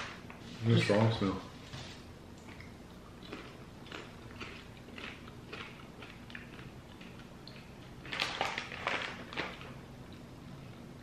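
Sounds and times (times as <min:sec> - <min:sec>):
popcorn chewing crunches: 0:02.4 - 0:10.9
plastic snack bag crinkling: 0:08.0 - 0:09.8.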